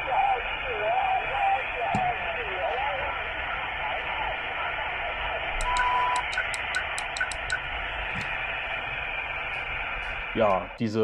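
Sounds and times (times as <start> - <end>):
radio receiver hiss: 0.0 - 11.0
short steady beep: 5.6 - 7.6
tuning clicks: 5.6 - 8.4.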